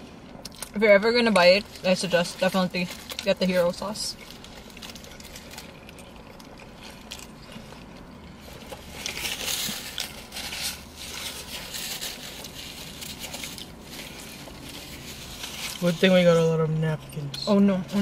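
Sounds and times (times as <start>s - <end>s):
paper wrappers rustling: 1.2s - 18.0s
chewing and biting: 2.4s - 15.8s.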